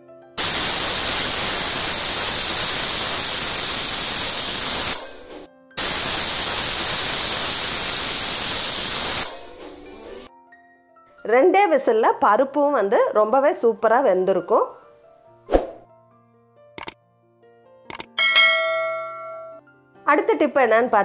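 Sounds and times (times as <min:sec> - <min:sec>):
pressure cooker whistling: 0:00.4 - 0:10.3.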